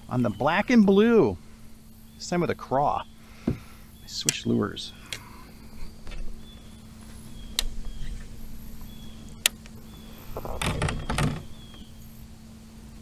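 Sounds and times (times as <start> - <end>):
sharp clicks: 8.8 - 11.9.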